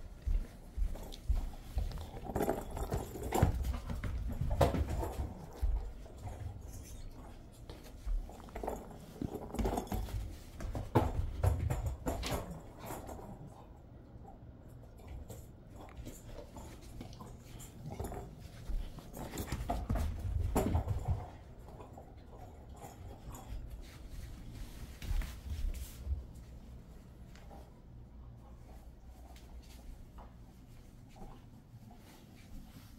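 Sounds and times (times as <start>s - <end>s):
dog moving with ball knocks: 1.0s - 13.4s, 15.0s - 26.4s.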